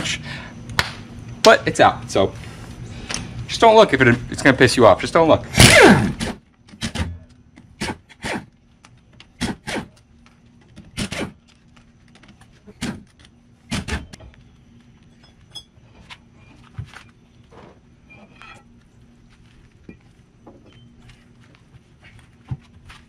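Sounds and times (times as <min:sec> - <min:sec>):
impact wrench bursts: 0:05.5 - 0:07.2.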